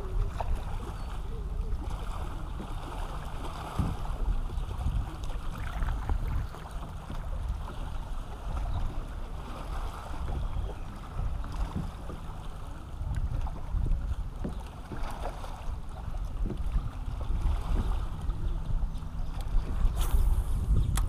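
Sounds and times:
water lapping against hull: 0.0s - 21.0s
wind buffeting microphone: 0.0s - 21.0s.

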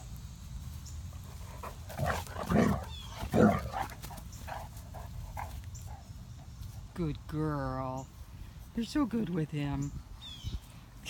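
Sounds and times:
dogs barking: 1.6s - 6.1s.

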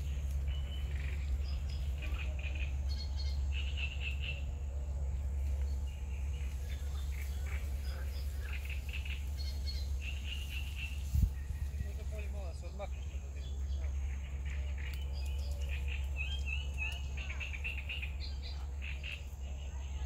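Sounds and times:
birds chirping: 0.0s - 20.0s
low rumble: 0.0s - 20.0s.

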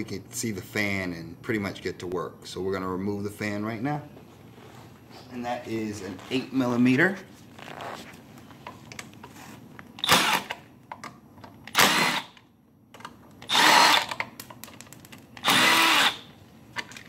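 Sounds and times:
impact wrench bursts: 10.0s - 10.6s, 11.7s - 12.4s, 13.4s - 14.2s, 15.4s - 16.3s.

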